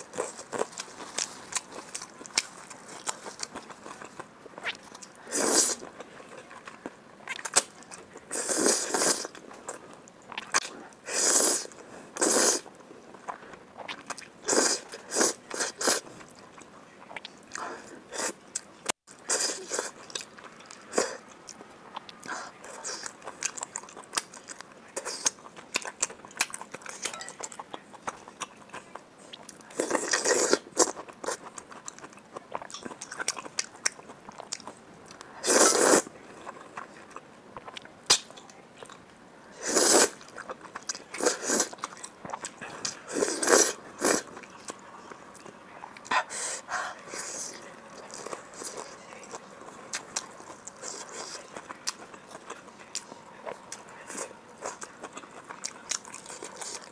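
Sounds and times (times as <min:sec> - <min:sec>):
loud noodle slurps: 0:11.1 - 0:12.6, 0:35.4 - 0:36.1, 0:39.6 - 0:40.2
wet chewing and lip-smacking: 0:18.5 - 0:35.3, 0:48.0 - 0:56.9.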